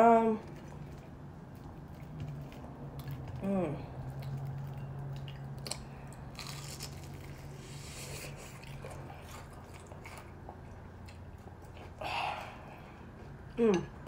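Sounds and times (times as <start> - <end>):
crunchy chewing: 0.4 - 12.0.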